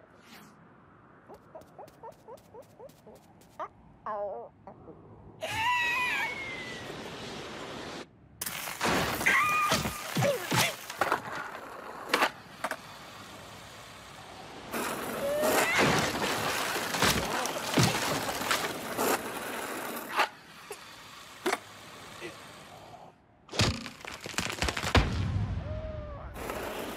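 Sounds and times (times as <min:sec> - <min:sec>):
cartoon bird squawks: 0:01.3 - 0:04.7
cartoon knocks and cracks: 0:23.5 - 0:25.2.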